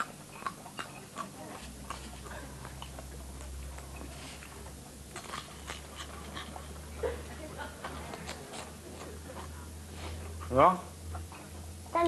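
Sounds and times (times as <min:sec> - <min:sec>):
dog crunching dry biscuits: 0:00.0 - 0:06.9.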